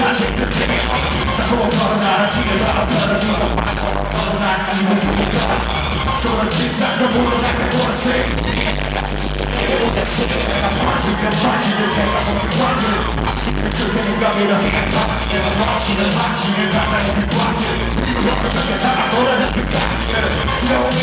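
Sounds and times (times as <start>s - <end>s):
fans yelling: 0.0s - 21.0s
heavy bass beat: 0.0s - 21.0s
people rapping into microphones: 0.0s - 21.0s.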